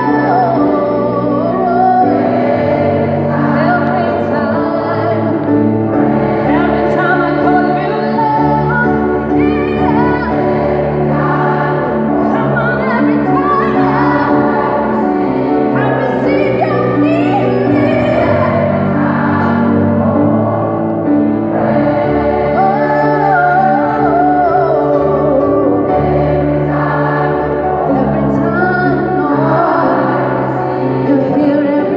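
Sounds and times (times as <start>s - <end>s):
female soloist singing: 0.0s - 5.5s, 6.5s - 14.9s, 15.8s - 19.7s, 22.5s - 26.0s, 27.6s - 31.9s
gospel choir singing: 0.0s - 31.9s
keyboard accompaniment: 0.0s - 31.9s.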